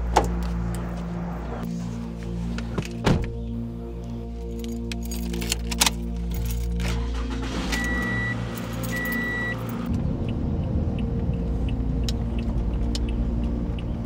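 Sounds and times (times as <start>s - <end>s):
car engine starting and running: 0.0s - 4.2s, 4.8s - 14.0s
car warning chime beeping: 7.2s - 9.7s.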